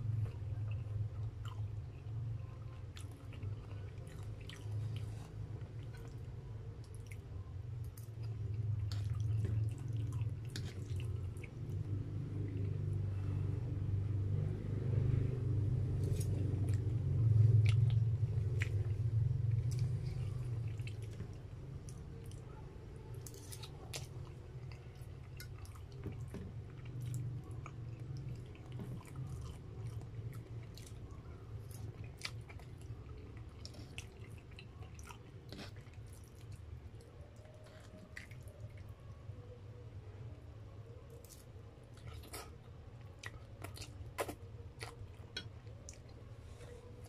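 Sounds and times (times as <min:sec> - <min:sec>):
chewing spaghetti: 0:00.1 - 0:13.6, 0:15.2 - 0:39.6, 0:40.8 - 0:47.0.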